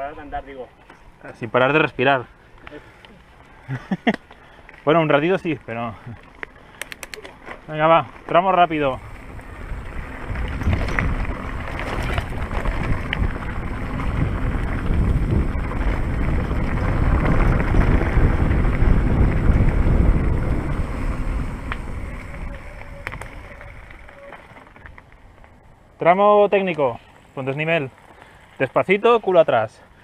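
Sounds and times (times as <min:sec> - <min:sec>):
light clicks: 0:06.4 - 0:07.4
wind buffeting microphone: 0:08.6 - 0:25.8.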